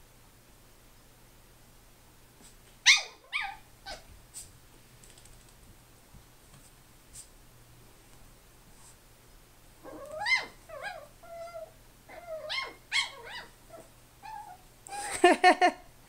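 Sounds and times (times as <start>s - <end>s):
puppy yipping: 2.8s - 4.1s, 9.8s - 15.1s.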